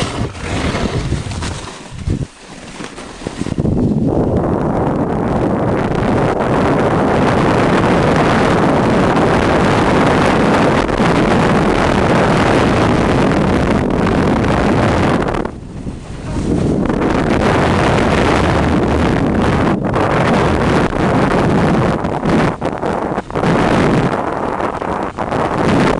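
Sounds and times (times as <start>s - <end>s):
sled runners hissing over snow: 0.0s - 3.8s
wind buffeting microphone: 0.0s - 25.9s.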